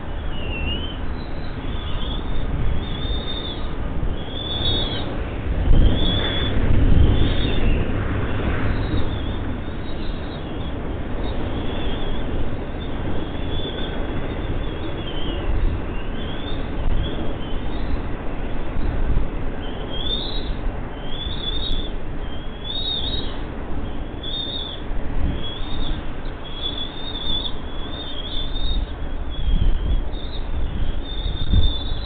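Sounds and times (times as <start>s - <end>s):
eaglets chirping: 0.1s - 7.9s, 8.7s - 18.9s, 19.6s - 32.0s.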